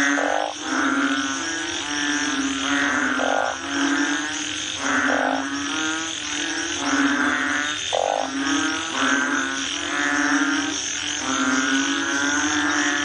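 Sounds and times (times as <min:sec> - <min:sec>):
frogs croaking: 0:00.0 - 0:13.0.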